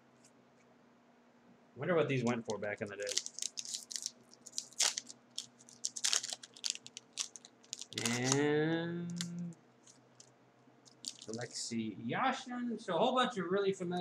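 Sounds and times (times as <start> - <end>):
plastic wrapper crackling: 2.2 - 8.5, 9.1 - 11.6
man humming: 8.0 - 9.6.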